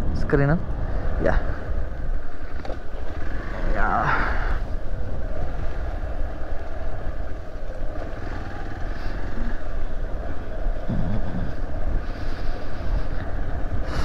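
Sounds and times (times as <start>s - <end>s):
motorcycle engine running: 2.4s - 12.1s.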